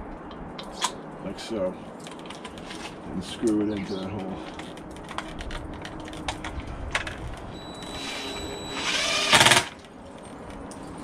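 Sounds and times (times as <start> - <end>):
cordless drill whine: 7.5 - 9.8
drill clicks: 7.7 - 9.8.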